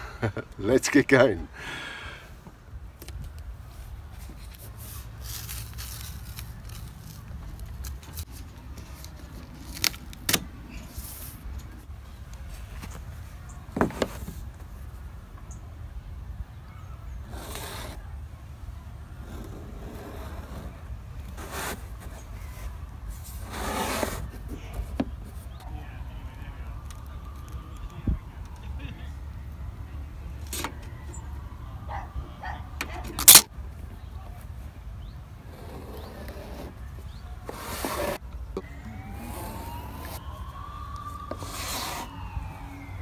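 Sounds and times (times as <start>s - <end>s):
wind rumbling on microphone: 25.6s - 28.6s
faint rising whine: 38.6s - 43.0s.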